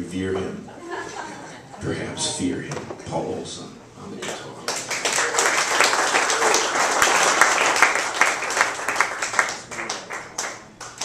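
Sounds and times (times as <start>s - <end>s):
audience applauding: 4.7s - 11.0s.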